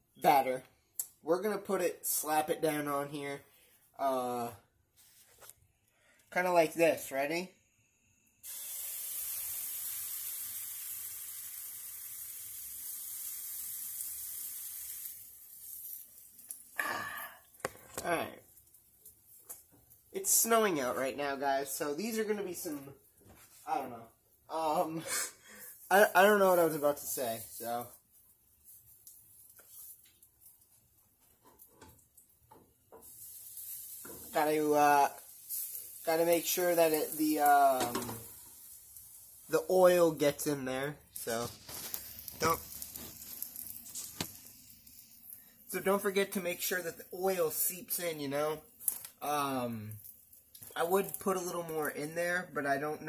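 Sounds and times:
batter sizzling in frying pan: 0:08.0 - 0:21.0, 0:25.5 - 0:52.1.

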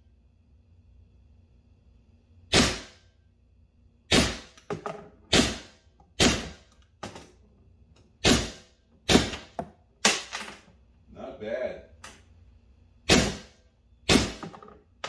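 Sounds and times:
paintball marker shots with echo: 0:13.1 - 0:14.6.

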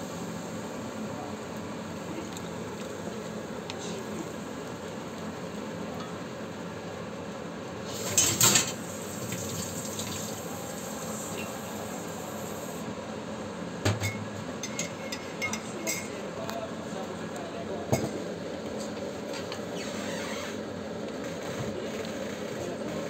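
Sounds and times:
sauce bubbling and sizzling: 0:07.9 - 0:12.8.

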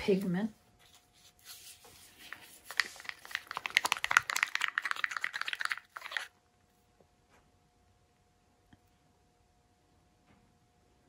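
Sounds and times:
stir stick clicking in paint: 0:02.7 - 0:06.3.

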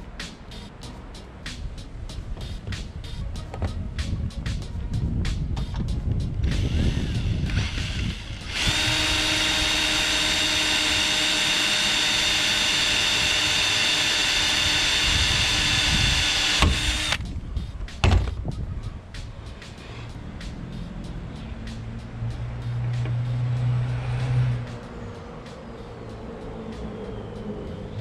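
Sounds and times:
cordless drill boring into metal: 0:06.5 - 0:17.2.

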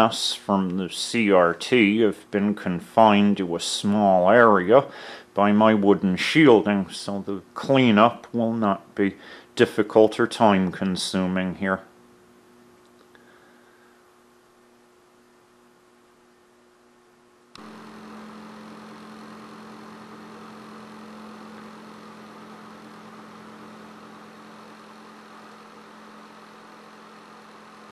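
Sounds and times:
workshop background hum: 0:00.0 - 0:27.9.

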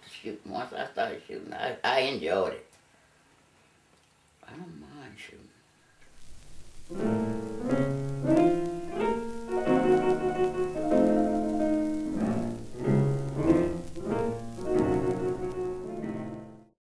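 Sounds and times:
slow piano chords: 0:06.2 - 0:16.7.

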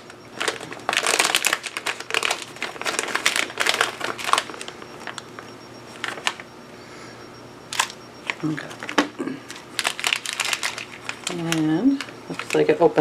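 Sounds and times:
plastic wrapper crackling and tearing: 0:00.0 - 0:05.2, 0:09.5 - 0:12.7.

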